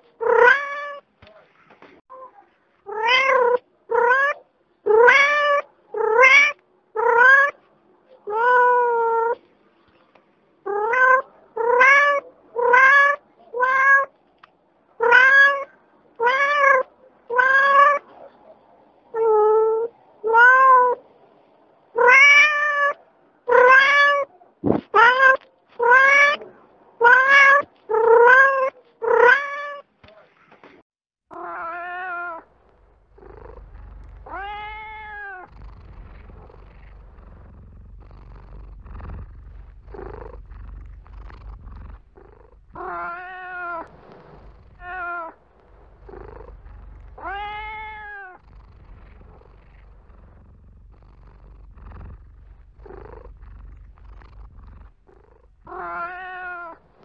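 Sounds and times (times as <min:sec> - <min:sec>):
cat meowing: 0:00.2 - 0:01.0, 0:02.1 - 0:07.6, 0:08.2 - 0:09.4, 0:10.6 - 0:14.1, 0:15.0 - 0:18.1, 0:19.2 - 0:21.0, 0:21.9 - 0:24.3, 0:24.9 - 0:29.9, 0:31.3 - 0:32.5, 0:33.2 - 0:50.6, 0:55.1 - 0:57.0.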